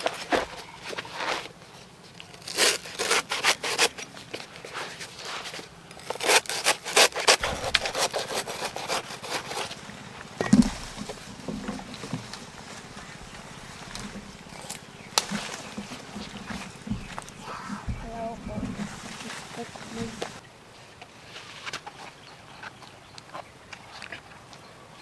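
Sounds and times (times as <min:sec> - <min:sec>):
cleaver chopping plant stem: 0:06.2 - 0:18.2
dull thump: 0:07.4 - 0:08.2, 0:10.3 - 0:20.4.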